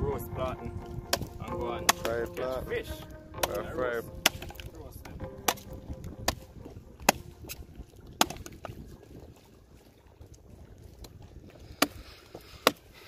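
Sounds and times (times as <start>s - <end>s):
sharp chopping strikes: 1.1s - 2.4s, 3.4s - 4.7s, 5.4s - 6.4s, 7.0s - 7.6s.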